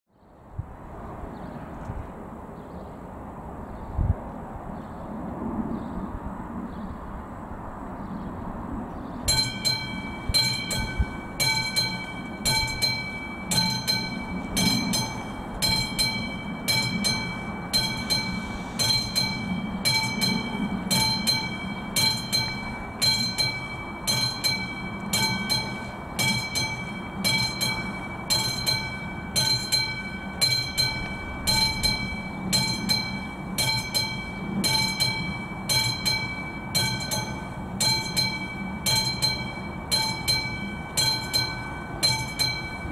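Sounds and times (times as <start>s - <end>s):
level crossing warning bell: 9.2s - 42.9s.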